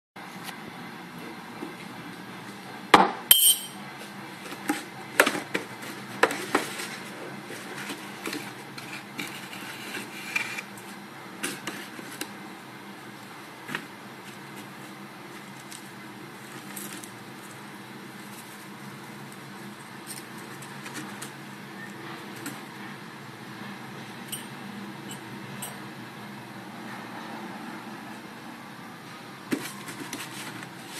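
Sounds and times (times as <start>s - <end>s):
paper and cardboard rustling: 4.3s - 12.3s, 13.6s - 21.4s, 29.5s - 30.9s.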